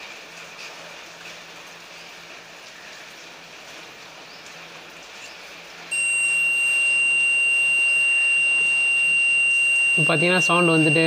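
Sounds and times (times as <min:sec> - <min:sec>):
multimeter continuity beep: 0:05.9 - 0:11.0.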